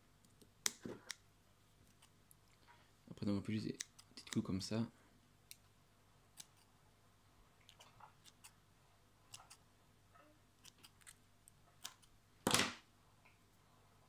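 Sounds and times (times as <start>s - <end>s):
scissors snipping wick: 11.8s - 12.1s.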